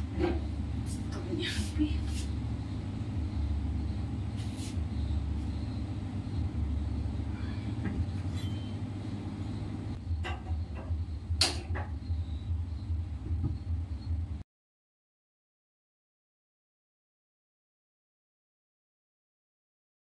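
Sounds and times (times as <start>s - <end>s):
steady low hum: 0.0s - 14.4s.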